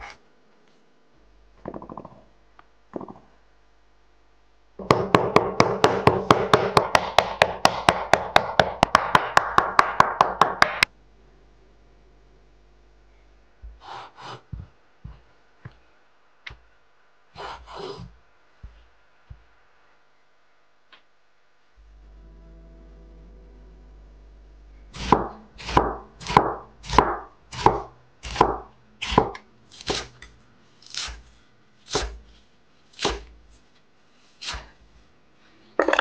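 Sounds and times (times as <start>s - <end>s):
meat pounded on wooden board: 4.8s - 10.9s, 25.0s - 30.0s.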